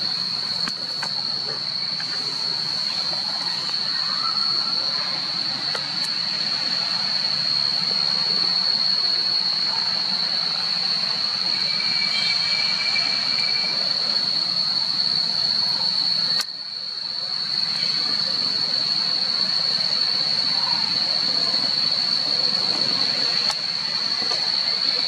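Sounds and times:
rushing background noise: 0.0s - 16.4s
high-pitched insect drone: 0.0s - 25.0s.

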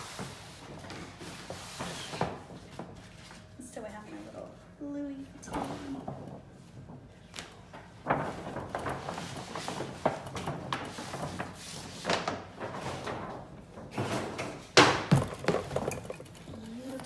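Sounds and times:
paper bag rustling and crinkling: 7.5s - 14.3s.

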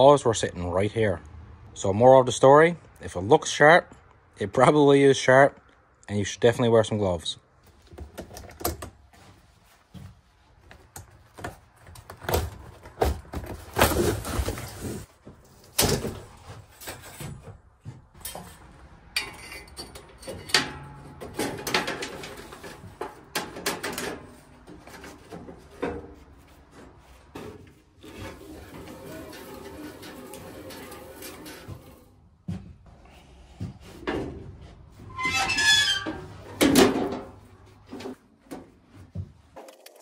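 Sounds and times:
metallic clanks and rattles: 18.2s - 26.5s, 27.3s - 32.2s, 35.4s - 38.7s.

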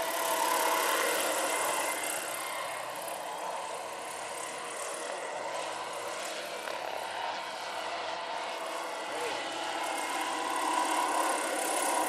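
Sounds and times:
model helicopter rotor whir: 0.0s - 12.0s.

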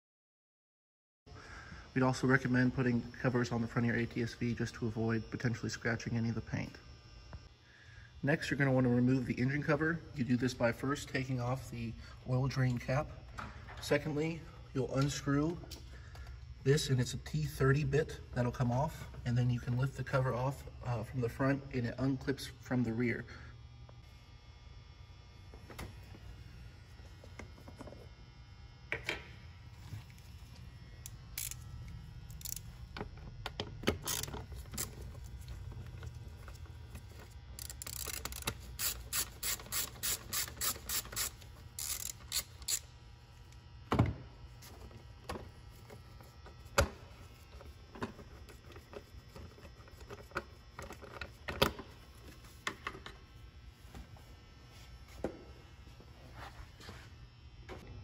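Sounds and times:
ratchet clicking: 31.0s - 31.7s, 32.3s - 32.7s, 34.0s - 35.0s, 37.6s - 42.9s.

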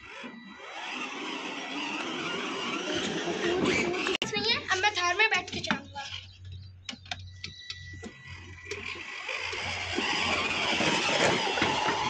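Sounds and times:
toy car electric motor humming: 0.0s - 4.2s, 7.6s - 12.0s.

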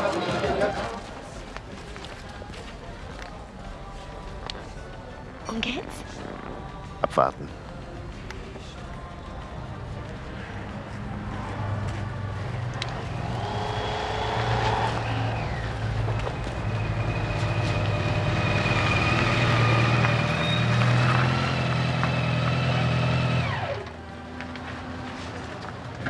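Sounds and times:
vehicle engine running with whine: 9.6s - 26.0s.

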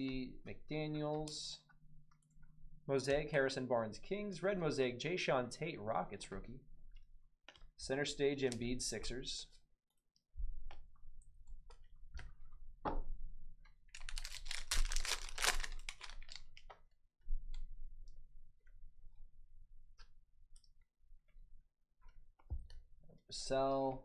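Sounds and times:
foil pack crinkling and tearing: 13.9s - 16.7s.

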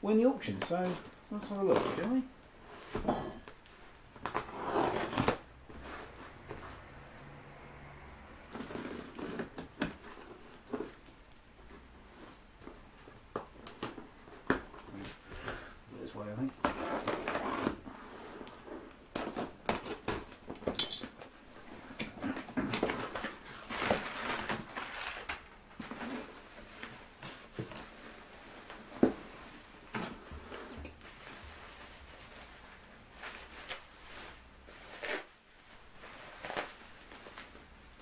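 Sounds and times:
packing paper and bubble wrap rustling: 0.0s - 7.5s, 8.2s - 38.0s
packing tape slit and pulled: 34.9s - 35.3s.

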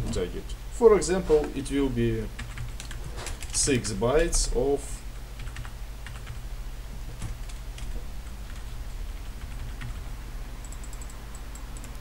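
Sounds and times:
steady low hum: 0.0s - 12.0s
computer key tapping: 2.4s - 3.6s, 10.6s - 12.0s.

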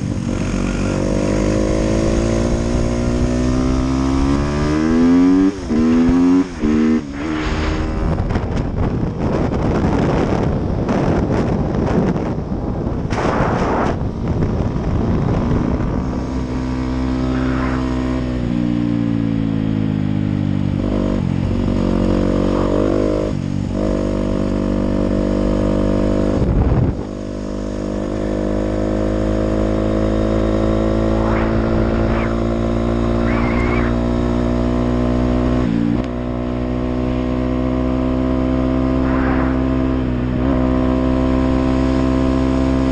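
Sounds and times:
wind hitting microphone: 5.7s - 18.6s, 26.3s - 27.3s, 29.5s - 36.4s
dirt bike engine: 16.3s - 18.8s, 27.3s - 35.4s, 38.5s - 42.3s.

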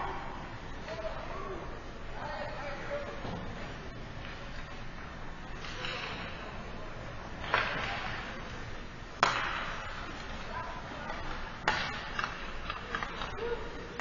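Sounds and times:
hockey puck cracks echoing: 9.2s - 10.1s, 11.1s - 13.4s.

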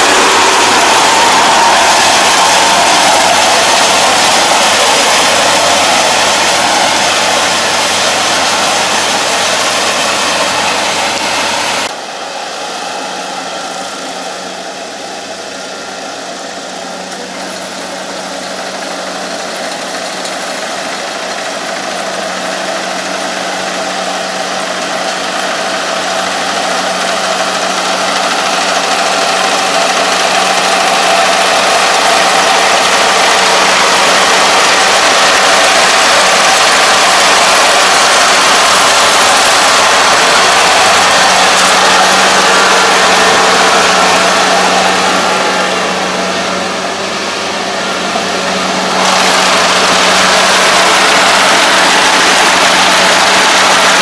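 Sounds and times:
combine harvester engine drone: 0.0s - 54.0s.

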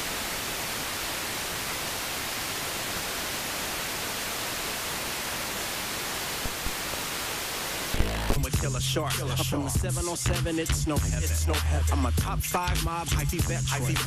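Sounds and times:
radio static hiss: 0.0s - 10.2s.

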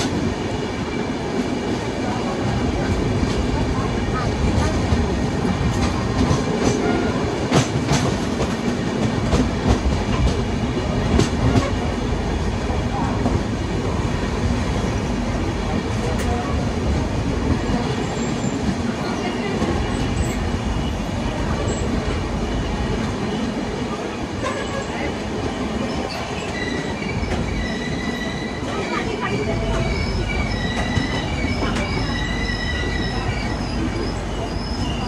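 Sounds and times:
train wheels rumbling on rail: 0.0s - 35.0s
high wheel squeal: 25.6s - 28.8s, 29.7s - 35.0s.

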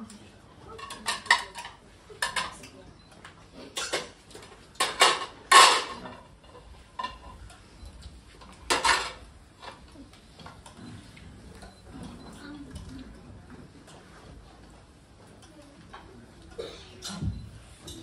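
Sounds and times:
plates clattering into metal bowl: 0.7s - 2.7s, 3.7s - 7.4s, 8.7s - 9.8s.

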